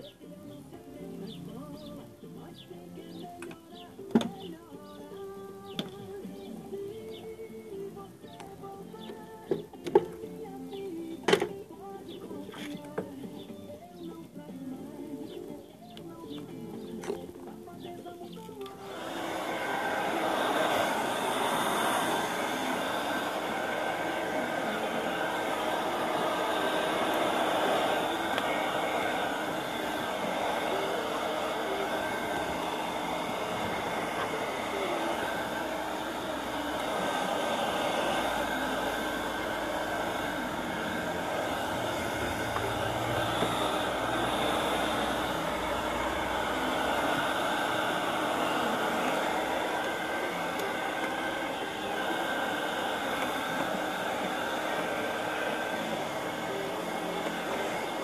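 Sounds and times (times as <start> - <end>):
hair dryer blowing air: 18.7 - 58.0
electric motor whirring: 18.8 - 58.0.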